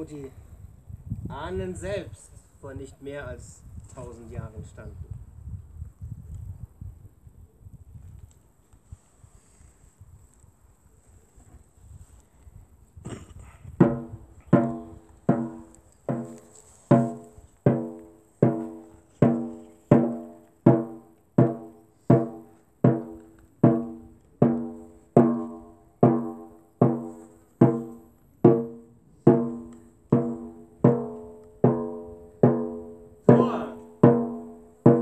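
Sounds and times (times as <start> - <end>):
frame drum booming: 13.8 - 35.0.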